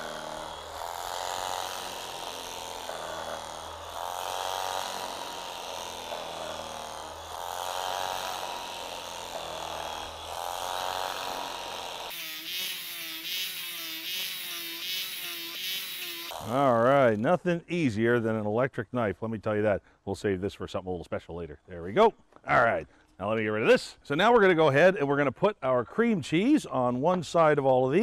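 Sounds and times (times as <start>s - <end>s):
electric carving knife cutting bread: 0.0s - 16.7s.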